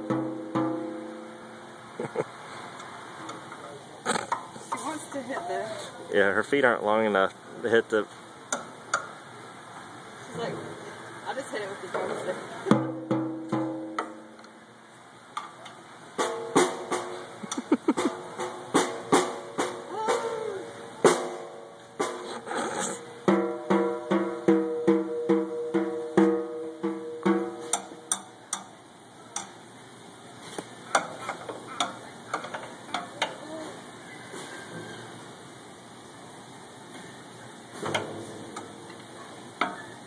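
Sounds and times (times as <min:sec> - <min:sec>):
child hitting drums: 0:00.0 - 0:01.2, 0:12.7 - 0:14.3, 0:16.2 - 0:28.2.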